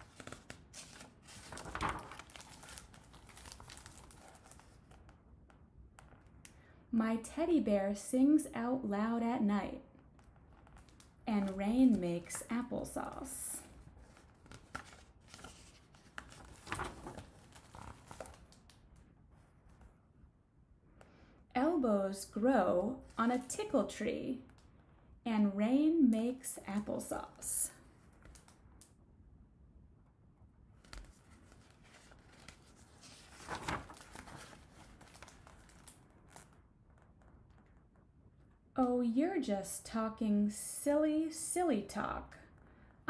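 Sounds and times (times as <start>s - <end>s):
book page turning: 0.0s - 5.2s, 10.2s - 20.0s, 30.8s - 37.8s.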